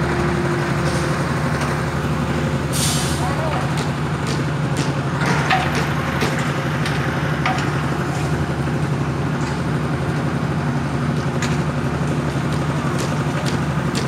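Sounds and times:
sharp clicks and knocks: 3.6s - 7.8s.

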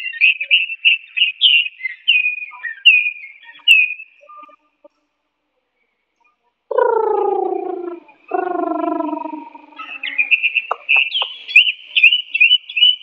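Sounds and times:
bird singing whistled notes: 0.0s - 4.6s, 7.4s - 13.0s.

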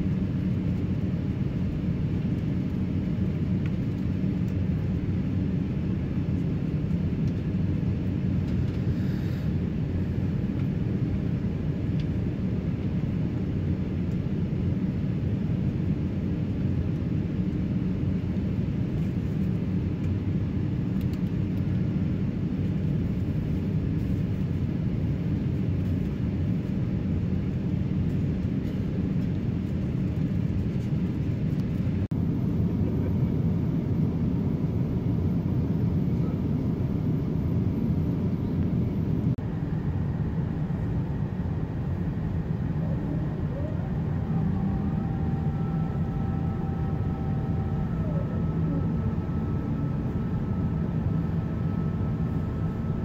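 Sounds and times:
airplane cabin rumble: 0.0s - 53.0s.

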